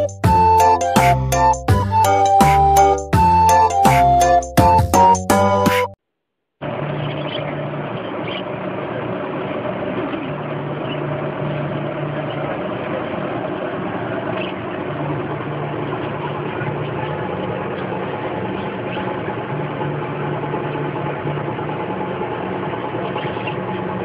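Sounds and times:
machine-like hum: 6.6s - 24.0s.

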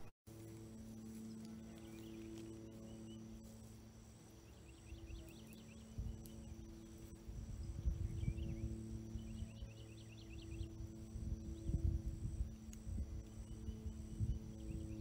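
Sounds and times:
low hum: 0.0s - 15.0s
insect drone: 0.3s - 15.0s
bird chirps: 4.4s - 10.8s.

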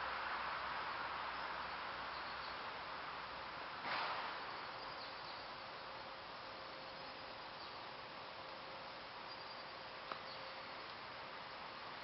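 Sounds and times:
faint steady hum: 0.0s - 12.0s
outdoor background hiss: 0.0s - 12.0s.

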